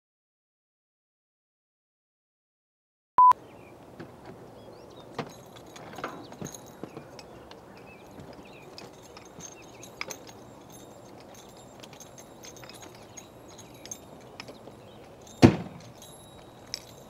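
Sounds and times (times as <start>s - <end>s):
faint outdoor background noise: 3.2s - 17.0s.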